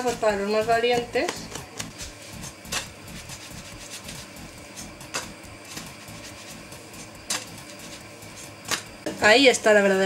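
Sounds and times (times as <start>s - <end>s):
frying pan hiss: 0.0s - 10.0s.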